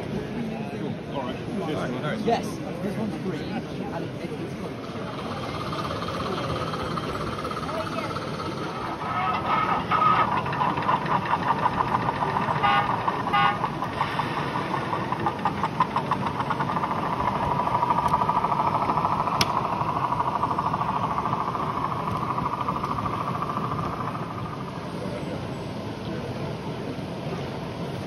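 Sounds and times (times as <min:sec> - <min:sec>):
model locomotive running: 0:00.0 - 0:28.0.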